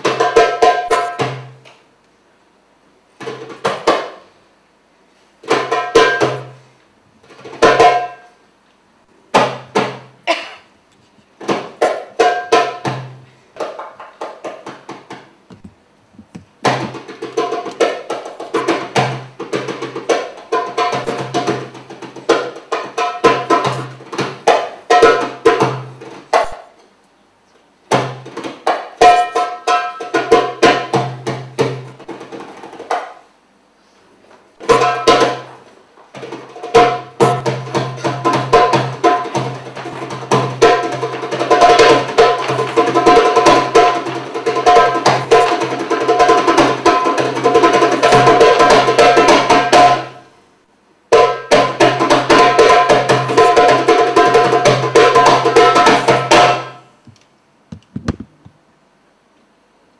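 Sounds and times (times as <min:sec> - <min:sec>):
percussive instrumental music: 0:00.0 - 0:01.6, 0:11.4 - 0:26.7, 0:27.9 - 0:33.1, 0:34.6 - 0:35.5, 0:36.2 - 0:50.2, 0:51.1 - 0:56.8.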